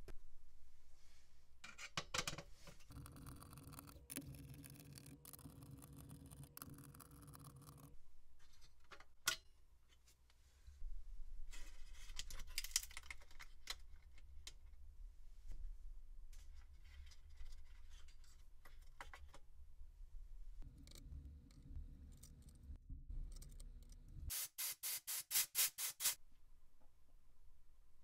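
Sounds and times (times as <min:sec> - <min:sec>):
small metal clicks and rubbing: 0:01.6 - 0:09.5, 0:11.8 - 0:14.7.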